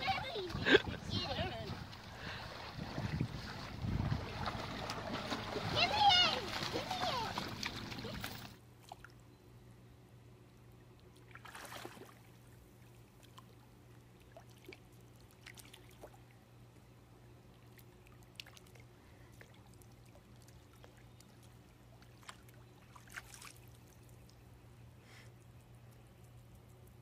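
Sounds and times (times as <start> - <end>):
water sloshing and trickling: 0.0 - 9.2, 11.0 - 16.6, 17.4 - 24.8
steady low hum: 0.0 - 11.2
water splash: 1.6 - 8.6, 11.3 - 12.2.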